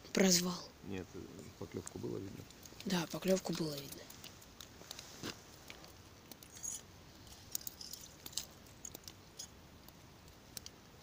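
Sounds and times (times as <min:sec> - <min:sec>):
crunching on snow and ice: 0:03.4 - 0:08.6.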